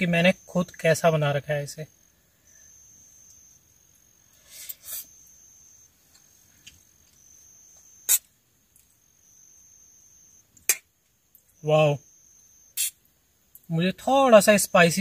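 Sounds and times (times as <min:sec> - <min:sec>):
cricket trilling: 0:00.0 - 0:15.0.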